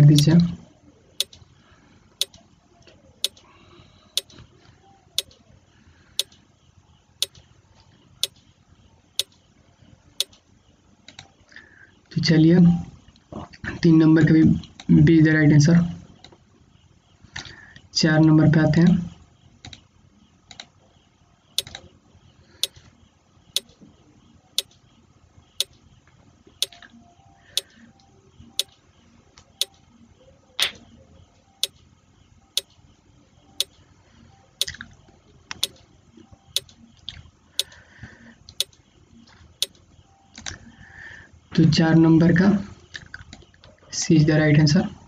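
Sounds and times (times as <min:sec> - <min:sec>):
countdown timer ticking: 0:00.0 - 0:00.3.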